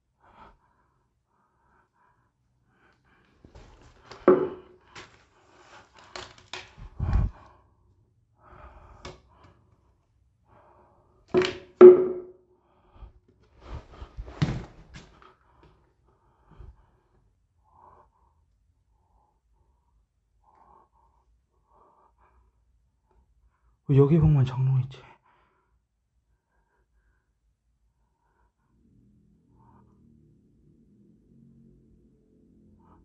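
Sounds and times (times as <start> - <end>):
hollow mannequin leg knocking: 4.1 - 5.1, 11.4 - 12.3.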